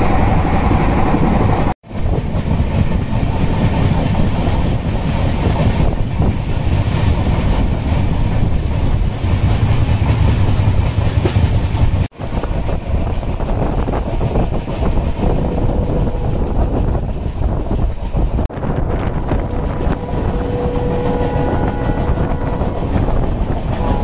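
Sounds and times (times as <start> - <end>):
train wheels rumbling on rails: 0.0 - 24.0
wheels clacking over rail joints: 1.9 - 16.0.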